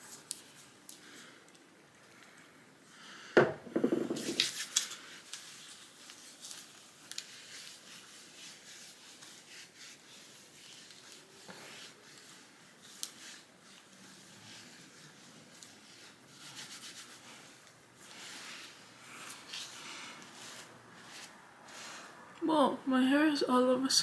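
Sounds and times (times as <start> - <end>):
hair being brushed: 3.8 - 22.3
hands rubbing together: 3.9 - 22.1.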